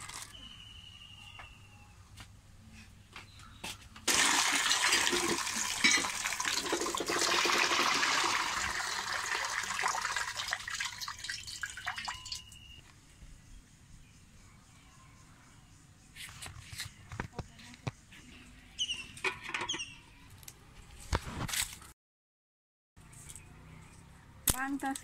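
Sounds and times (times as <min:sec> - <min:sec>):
water gushing into metal wok: 0:04.1 - 0:12.5.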